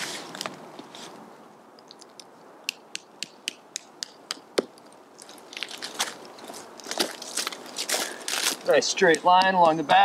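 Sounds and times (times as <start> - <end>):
rustling dry leaves: 0.0 - 1.3, 4.8 - 10.0.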